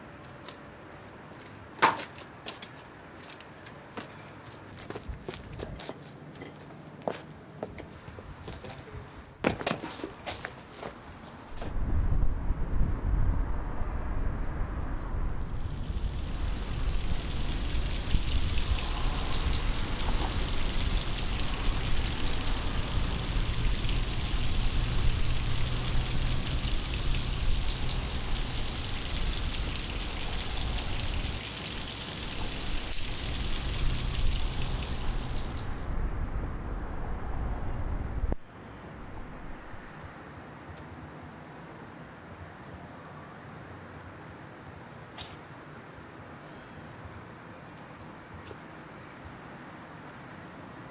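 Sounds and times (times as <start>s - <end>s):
heavy rain: 14.6s - 36.0s.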